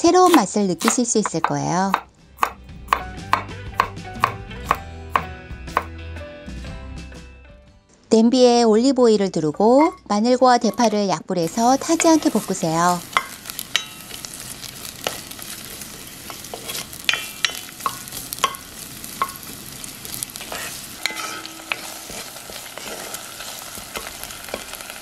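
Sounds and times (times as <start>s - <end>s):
garlic sizzling in oil: 0.0s - 2.5s, 10.6s - 25.0s
wooden spoon scraping a pot: 10.6s - 24.9s.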